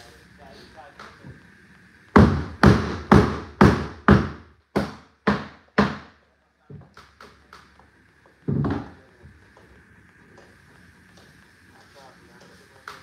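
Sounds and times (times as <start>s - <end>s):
hammer striking floorboards: 2.2s - 7.0s, 8.5s - 9.0s.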